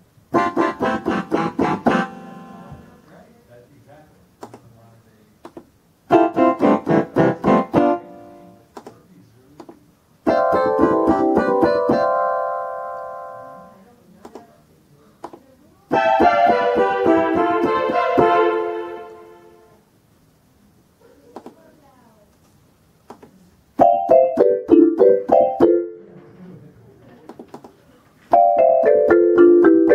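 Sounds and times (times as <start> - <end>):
electronic keyboard playing: 0.3 - 3.0, 6.1 - 8.6, 10.2 - 13.8, 15.9 - 19.7, 23.8 - 26.1, 28.3 - 29.9.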